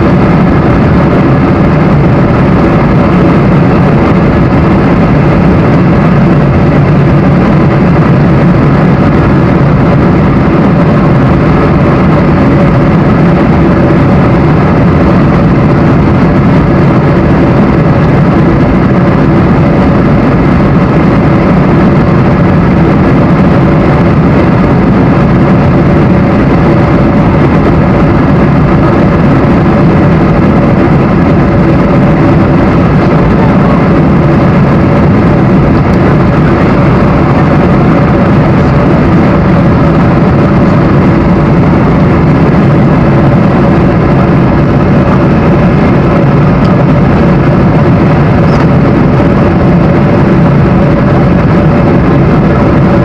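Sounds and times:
jet engine and airflow roar: 0.0 - 53.0
steady hum tones: 0.0 - 53.0.

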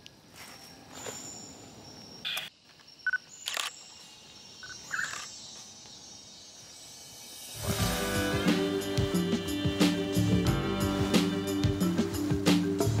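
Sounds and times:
faint forest ambience: 0.0 - 12.9
camera shutter clicks: 3.4 - 3.8, 4.9 - 5.3.

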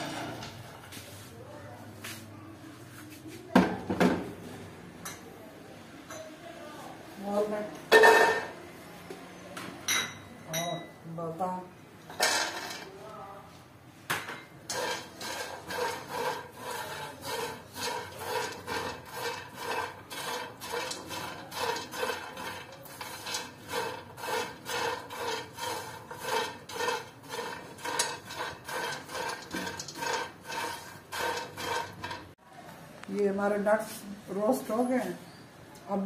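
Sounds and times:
spatula scraping nuts in pan: 14.7 - 32.4.

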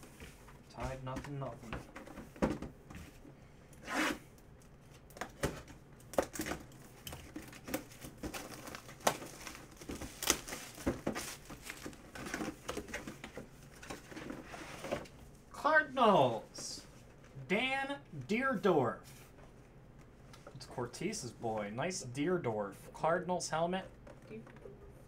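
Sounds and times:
cardboard packaging crinkling: 7.2 - 13.2.

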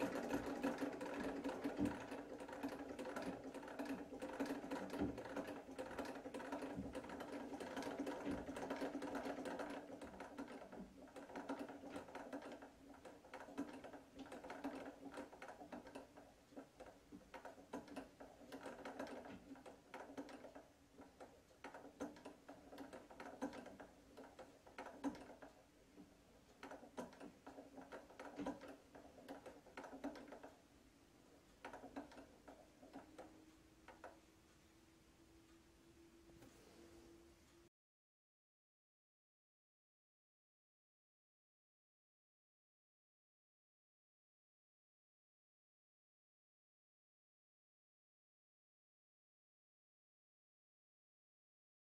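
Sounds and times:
sewing machine clattering: 0.0 - 30.7, 31.3 - 34.2.

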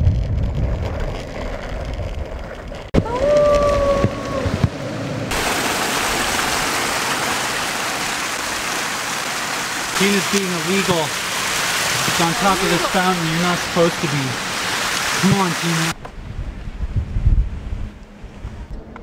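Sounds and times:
water pouring down stone wall: 0.0 - 4.7, 5.3 - 16.0
low rumble: 0.0 - 7.2, 16.0 - 19.0.

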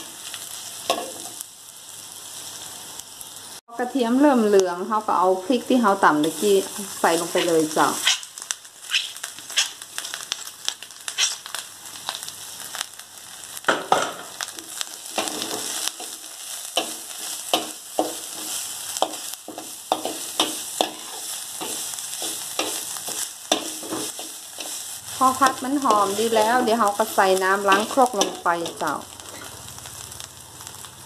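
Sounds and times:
paste sizzling in hot oil: 0.0 - 3.6, 4.3 - 31.0
metal spatula scraping a wok: 6.2 - 10.1, 11.1 - 11.5, 14.7 - 30.2.

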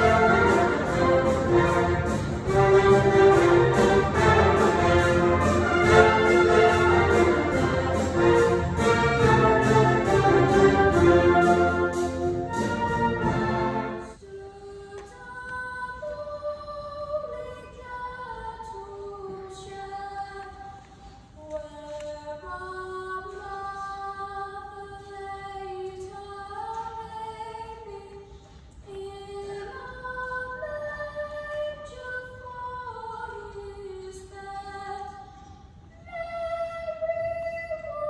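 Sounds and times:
children's choir singing: 0.0 - 17.7.

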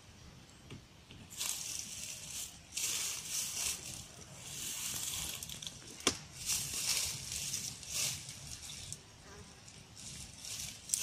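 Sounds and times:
dry rustling and crunching: 1.1 - 11.0.

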